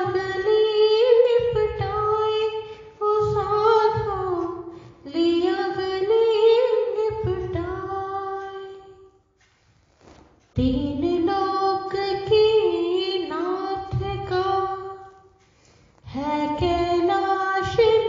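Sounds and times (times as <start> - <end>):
woman singing devotional song: 0.0 - 9.2, 10.5 - 15.4, 16.0 - 18.0.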